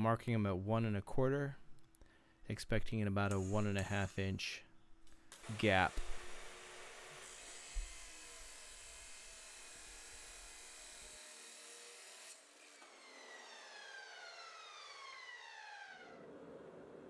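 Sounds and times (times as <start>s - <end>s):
chop saw grinding steel: 5.4s - 13.1s
motor winding down whine: 6.0s - 17.0s.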